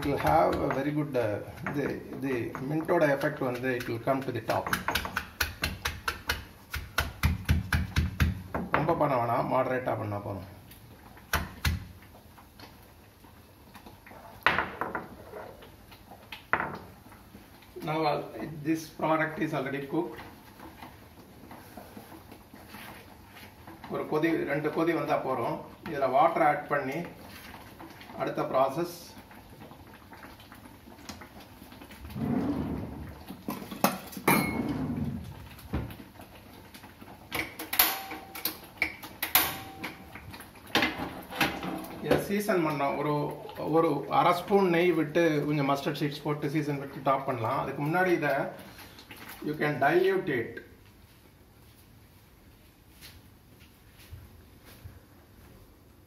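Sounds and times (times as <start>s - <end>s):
stone pestle knocking in mortar: 1.6s - 8.9s.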